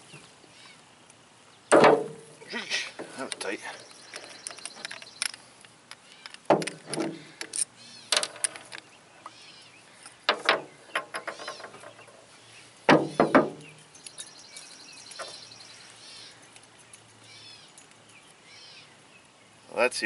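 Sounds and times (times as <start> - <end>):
birds chirping: 0.0 - 20.0
metal parts clinking on steel: 3.2 - 8.9.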